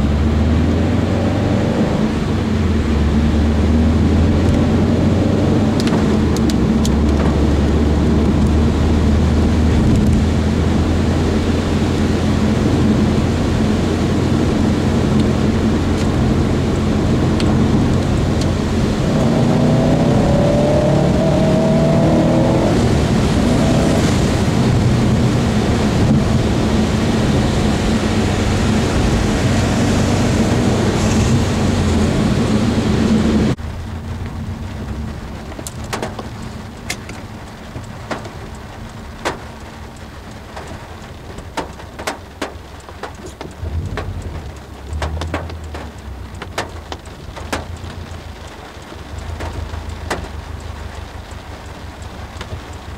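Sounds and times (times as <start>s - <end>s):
car engine and wet road noise: 0.0s - 52.9s
rain on car roof: 0.0s - 52.9s
water drops clanking on roof: 35.5s - 52.9s.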